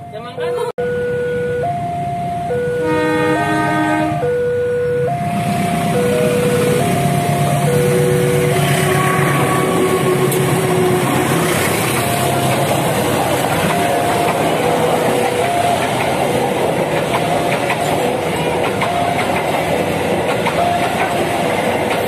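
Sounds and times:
level crossing ding-dong alarm: 0:00.0 - 0:09.0, 0:13.6 - 0:16.0
locomotive engine rumble: 0:04.9 - 0:22.0
train wheel noise: 0:05.1 - 0:22.0.

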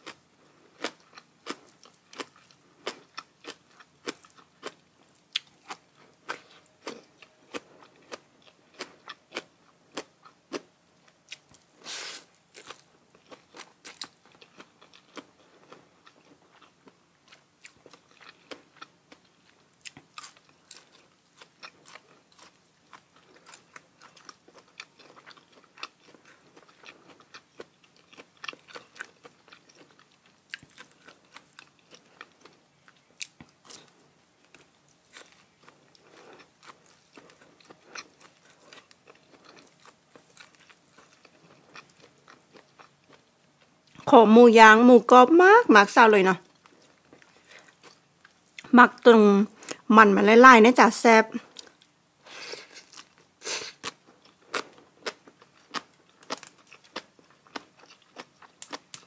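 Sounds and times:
chewing and crunching food: 0:00.0 - 0:44.1, 0:46.3 - 0:49.9, 0:51.4 - 0:59.0.

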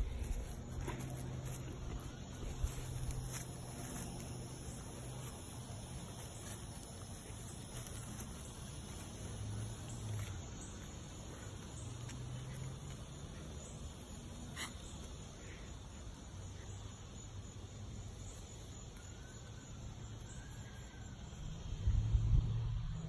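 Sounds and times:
faint insects chirping: 0:00.0 - 0:23.0
low hum: 0:21.4 - 0:23.0.

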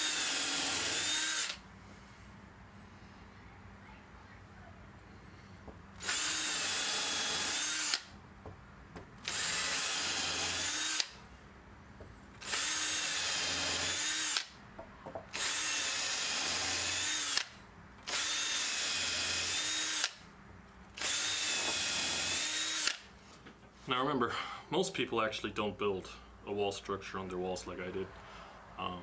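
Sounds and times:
cordless drill drilling wood: 0:00.0 - 0:01.6, 0:06.0 - 0:08.1, 0:09.2 - 0:11.2, 0:12.4 - 0:14.6, 0:15.3 - 0:20.2, 0:20.9 - 0:23.1.

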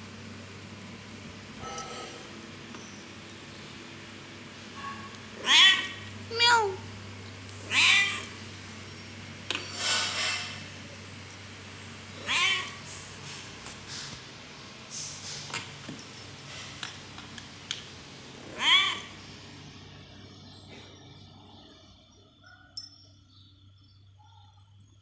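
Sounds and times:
cat meowing loudly: 0:05.4 - 0:06.6, 0:07.6 - 0:08.3, 0:12.2 - 0:12.8, 0:18.5 - 0:19.1.

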